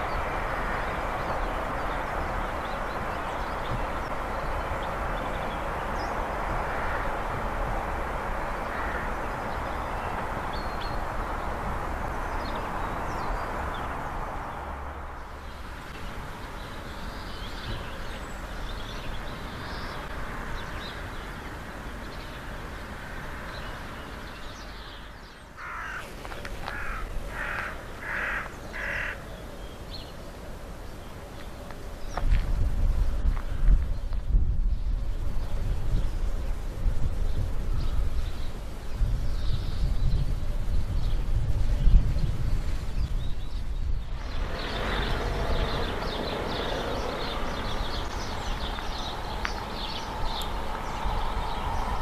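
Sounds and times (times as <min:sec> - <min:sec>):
small birds chirping: 0:00.0 - 0:07.2, 0:08.4 - 0:32.4, 0:33.0 - 0:52.0
crow cawing: 0:06.7 - 0:07.1, 0:08.7 - 0:09.2, 0:25.6 - 0:29.3.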